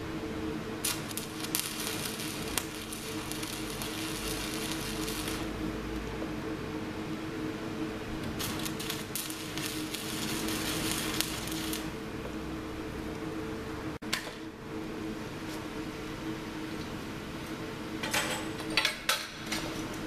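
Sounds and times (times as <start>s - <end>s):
welding arc crackling: 0.0s - 6.2s, 8.0s - 13.2s
steady hum: 0.0s - 20.0s.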